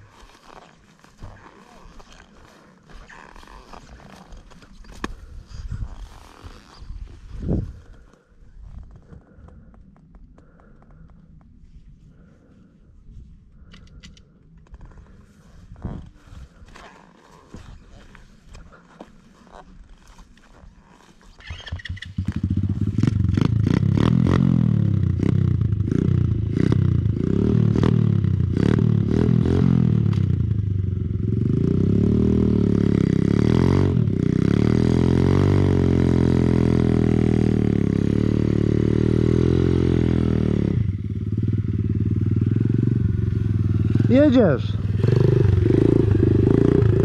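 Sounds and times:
motorbike engine revving: 21.4s - 47.0s.

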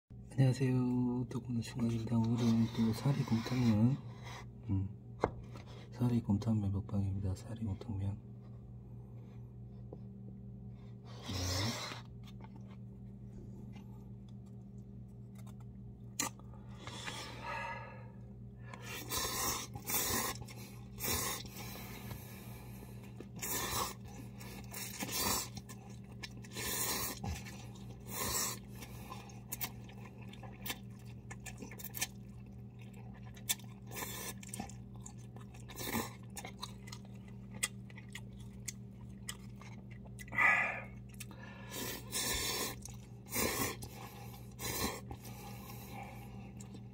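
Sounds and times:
steady low hum: 0.1s - 46.9s
chewing: 18.7s - 46.9s.

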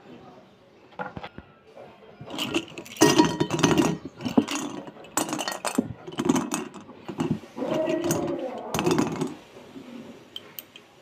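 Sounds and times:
slate pencils clinking and clattering: 2.2s - 9.5s, 10.4s - 10.9s.

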